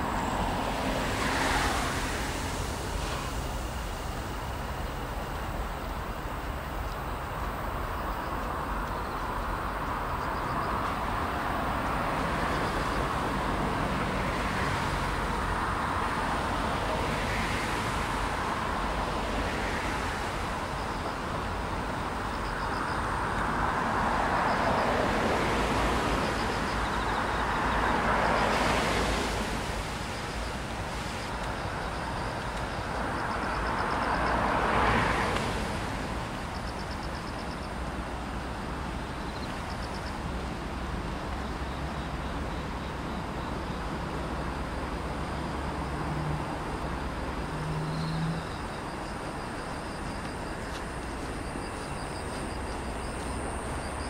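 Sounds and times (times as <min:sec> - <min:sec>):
tyres hissing on wet road: 0:00.0 - 0:54.0.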